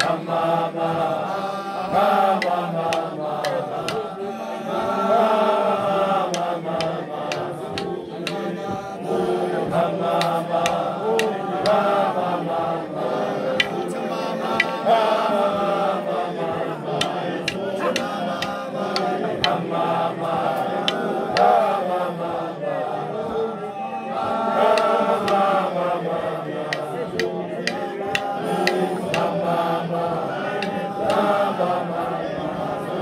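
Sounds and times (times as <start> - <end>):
group singing a chant-like song: 0.0 - 33.0
sharp percussive hits: 26.7 - 29.4.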